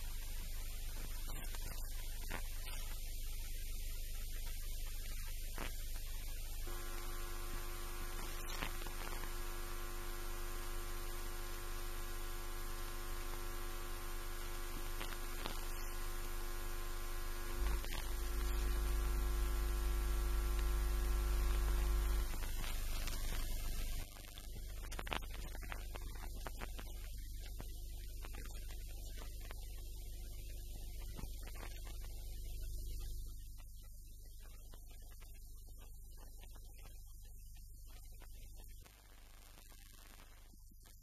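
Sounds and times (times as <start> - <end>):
electrical mains hum: 0.0 - 41.0
steady buzzing tones: 6.5 - 25.1
deep hum: 6.7 - 22.4.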